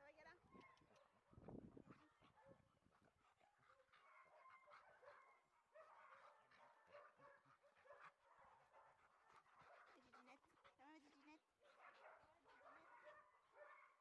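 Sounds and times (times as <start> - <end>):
dogs whimpering and yipping: 3.4 - 7.1.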